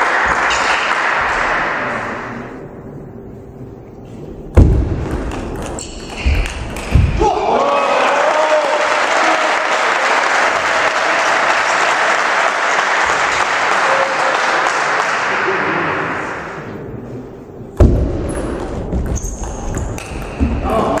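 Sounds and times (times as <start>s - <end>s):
spectators applauding: 0.0s - 2.1s, 7.3s - 15.8s
loud thump: 4.5s - 5.4s, 6.2s - 7.2s, 17.8s - 18.3s.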